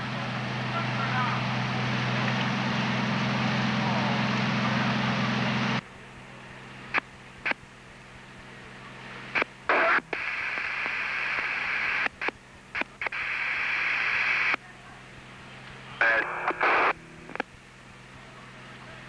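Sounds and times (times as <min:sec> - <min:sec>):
radio scanner hiss and hum: 0:05.5 - 0:19.0
radio clicks: 0:09.3 - 0:14.6, 0:15.6 - 0:17.6.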